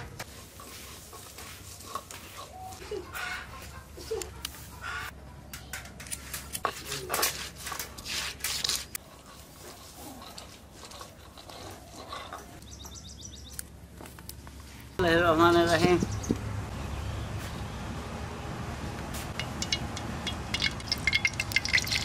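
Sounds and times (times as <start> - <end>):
chicken scuffling and rustling: 6.2 - 12.6.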